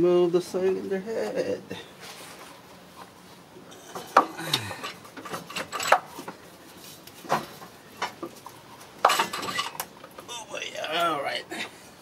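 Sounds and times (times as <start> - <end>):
metal clanking and scraping: 3.7 - 6.3, 9.0 - 9.9.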